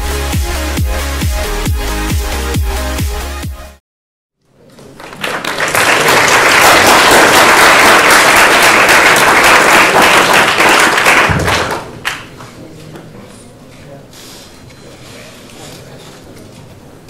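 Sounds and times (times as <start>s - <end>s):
electronic dance music beat: 0.0s - 3.8s
large audience applauding: 4.8s - 12.3s.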